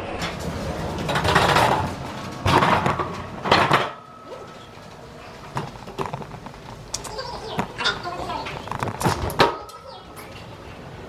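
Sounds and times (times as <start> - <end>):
metal luggage cart clattering: 0.2 - 4.0.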